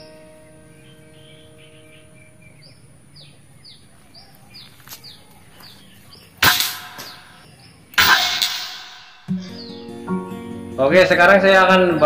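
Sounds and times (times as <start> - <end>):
bird chirping: 0.0 - 12.0
air rifle shot cracks: 6.4 - 7.4.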